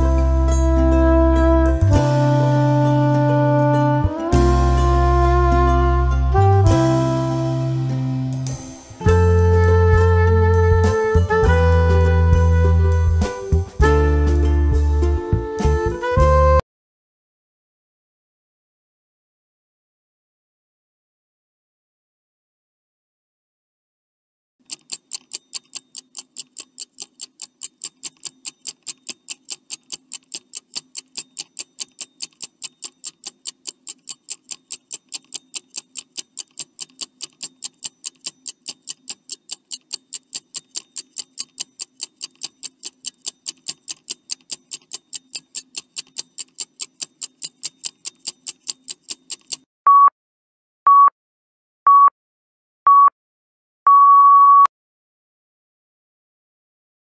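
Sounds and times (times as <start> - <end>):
clock ticking quickly: 24.6 - 49.7
short beeps: 49.9 - 50.1, 50.9 - 51.1, 51.9 - 52.1, 52.9 - 53.1, 53.9 - 54.7.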